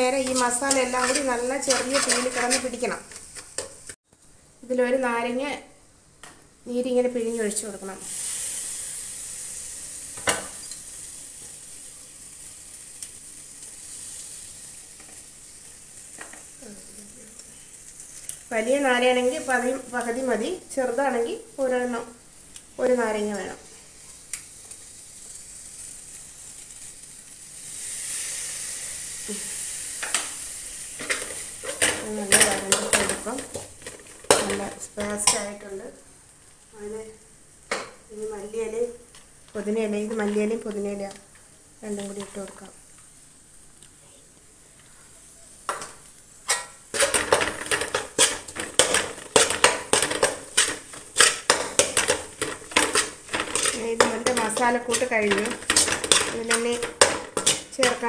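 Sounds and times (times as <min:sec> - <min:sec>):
metal spoon scraping a pan: 0:00.0 - 0:03.9, 0:31.0 - 0:35.5, 0:46.4 - 0:58.0
chicken sizzling in a hot pan: 0:07.1 - 0:39.2, 0:44.5 - 0:58.0.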